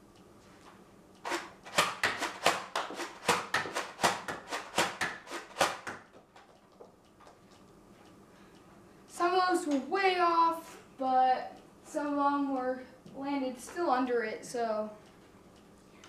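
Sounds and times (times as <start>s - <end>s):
toy blaster pump clacks and shots: 1.2s - 6.5s.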